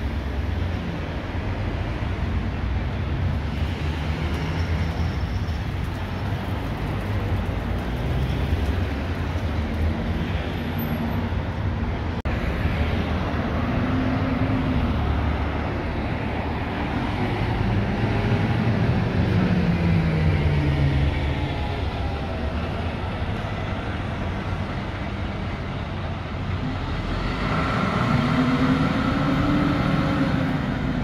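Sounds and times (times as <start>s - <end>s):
street traffic rumbling: 0.0s - 31.0s.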